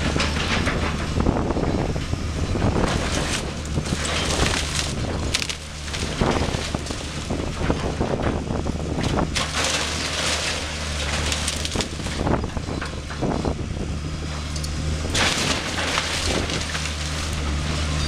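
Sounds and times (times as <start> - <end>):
diesel engine running: 0.0 - 18.0
wood cracking and crashing: 2.7 - 13.4, 15.0 - 18.0.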